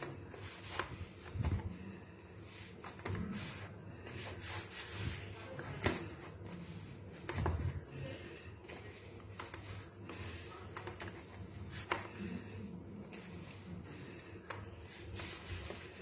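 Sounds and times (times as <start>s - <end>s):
hands kneading dough: 0.0s - 16.0s.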